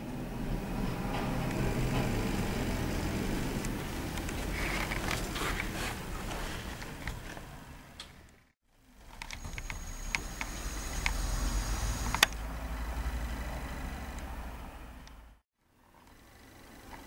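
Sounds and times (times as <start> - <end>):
camcorder low rumble: 0.0 - 7.6, 9.0 - 15.3
zoom motor whine: 9.2 - 14.3
sharp click: 11.9 - 12.4.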